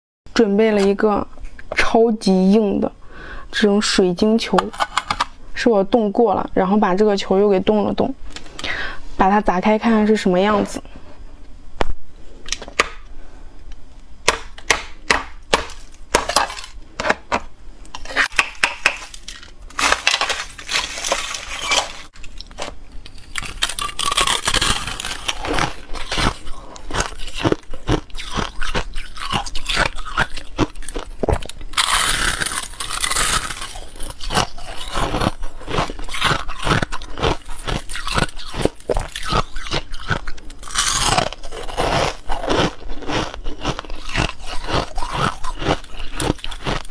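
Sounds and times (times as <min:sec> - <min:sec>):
ice crackling and crunching: 0:15.7 - 0:16.8, 0:18.9 - 0:22.4, 0:23.1 - 0:46.9.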